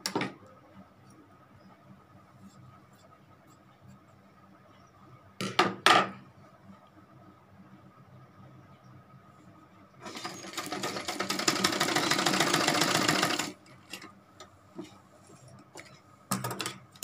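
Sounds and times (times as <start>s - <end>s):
sewing machine stitching: 10.0s - 13.6s.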